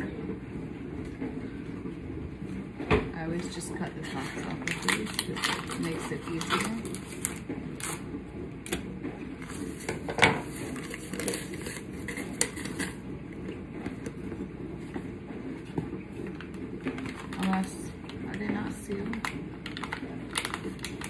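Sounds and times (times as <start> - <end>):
paper rustling: 9.4 - 13.0.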